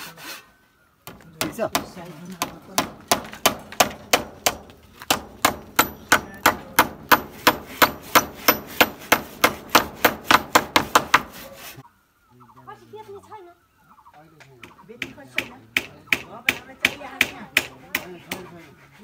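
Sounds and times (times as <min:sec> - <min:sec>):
hammer driving nail into wood: 0:02.8 - 0:11.3.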